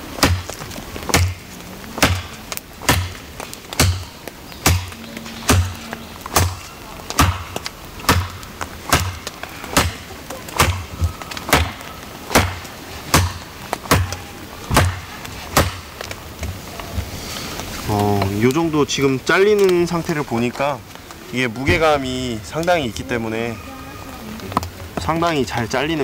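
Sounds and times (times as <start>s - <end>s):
knife chopping into branch: 2.0s - 10.9s, 11.5s - 15.9s.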